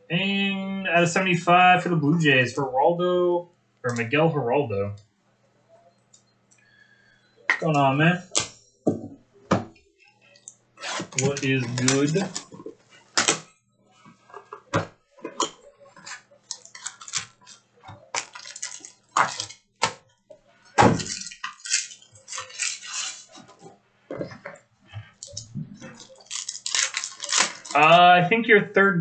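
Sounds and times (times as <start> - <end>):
trading cards crinkling and snapping: 10.9 - 13.5, 15.4 - 20.0, 20.9 - 23.6, 25.2 - 27.8.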